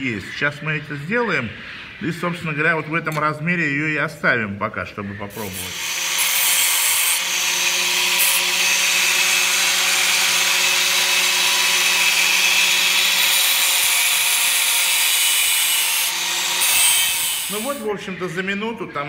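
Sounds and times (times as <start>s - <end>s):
angle grinder grinding metal: 5.3s - 17.9s.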